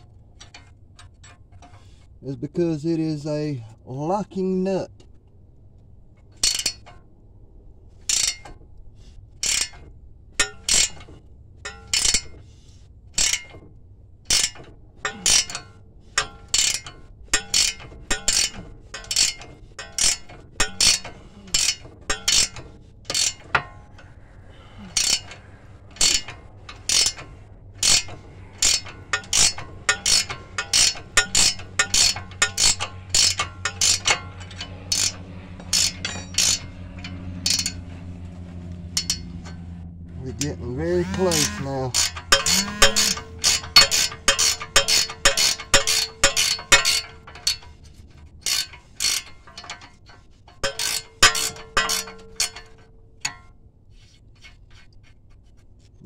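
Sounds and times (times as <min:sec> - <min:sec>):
ratchet wrench clicking: 0:06.4 - 0:06.8, 0:08.1 - 0:08.5, 0:09.4 - 0:09.8, 0:10.4 - 0:11.0, 0:13.2 - 0:13.6, 0:14.3 - 0:15.6, 0:16.2 - 0:37.8, 0:39.0 - 0:39.6, 0:40.4 - 0:53.4.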